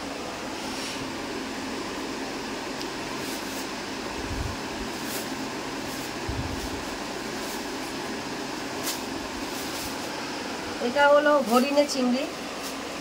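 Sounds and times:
electric fan whooshing: 0:00.0 - 0:13.0
soft low thumps: 0:06.2 - 0:07.0.

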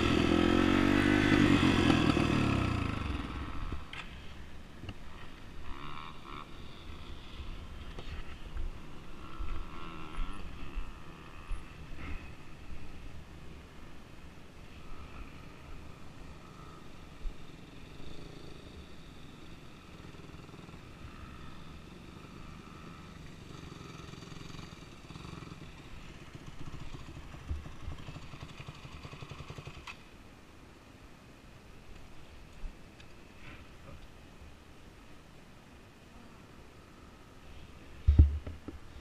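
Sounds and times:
dirt bike engines running: 0:00.0 - 0:13.7, 0:14.6 - 0:30.1.

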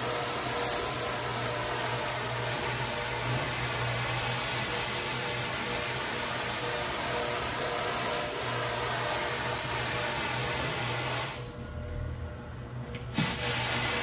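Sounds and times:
floor machine motor hum: 0:00.0 - 0:14.0
brush scrubbing wet rug: 0:02.5 - 0:07.6, 0:13.2 - 0:14.0.

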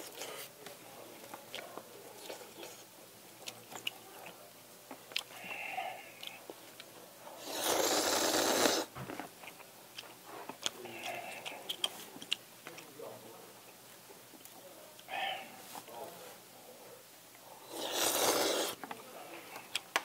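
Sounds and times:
chewing and mouth clicks: 0:01.4 - 0:05.6, 0:06.2 - 0:06.9, 0:09.1 - 0:12.9
person slurping noodles: 0:07.4 - 0:08.9, 0:17.7 - 0:18.8.

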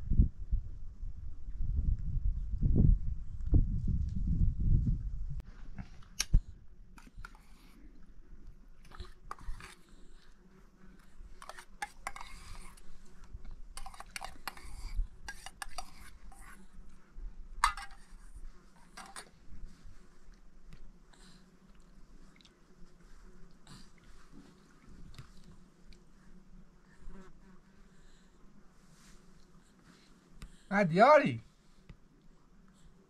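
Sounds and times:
utensil scraping and clinking on plate: 0:11.4 - 0:12.8, 0:13.8 - 0:16.6, 0:17.6 - 0:18.1, 0:18.9 - 0:19.3.

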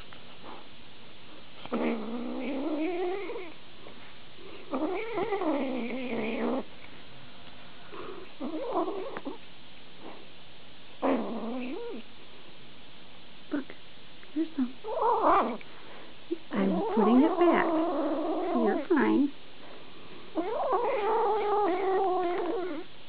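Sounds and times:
kitten growly calls while eating: 0:01.6 - 0:03.6, 0:04.7 - 0:06.7, 0:07.9 - 0:09.4, 0:11.0 - 0:12.1, 0:14.8 - 0:15.6, 0:16.3 - 0:19.1, 0:20.4 - 0:22.9.

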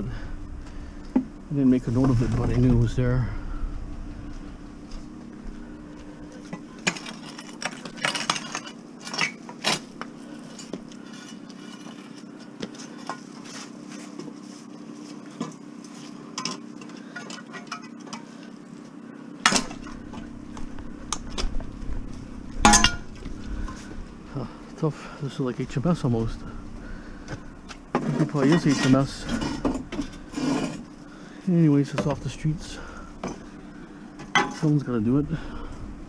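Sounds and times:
steady low hum: 0:00.0 - 0:36.0
metal frame clinking and clanking: 0:22.6 - 0:23.8.

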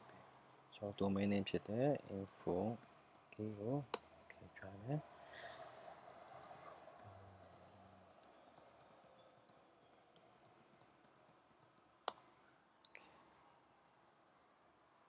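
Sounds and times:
keyboard typing: 0:02.0 - 0:04.1, 0:06.1 - 0:12.2.

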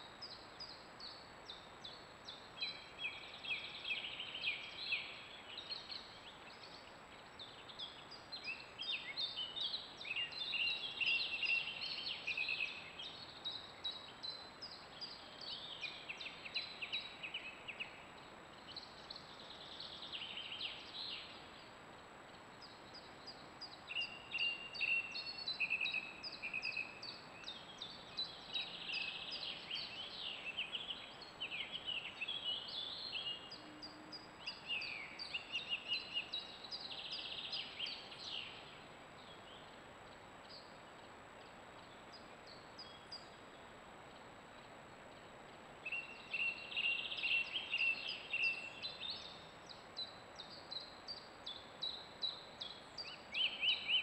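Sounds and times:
songbirds chirping and trilling: 0:00.0 - 0:54.0.

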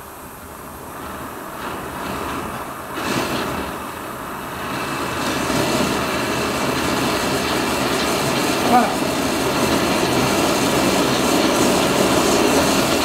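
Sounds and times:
gas burner rushing: 0:00.0 - 0:13.0.

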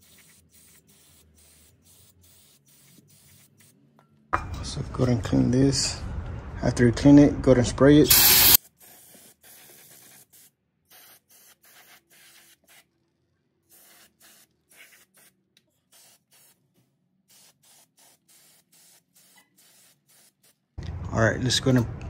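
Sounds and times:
aerosol spray hissing: 0:08.1 - 0:08.6.

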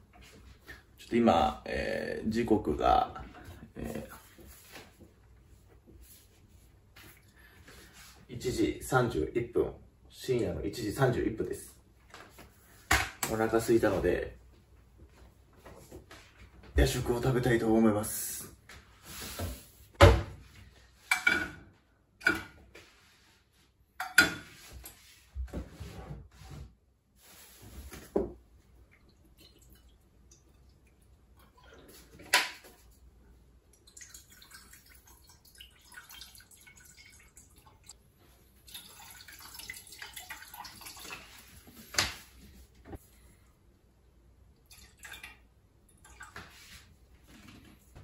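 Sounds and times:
liquid trickling into water: 0:28.8 - 0:32.2, 0:33.6 - 0:41.7, 0:44.6 - 0:46.6.

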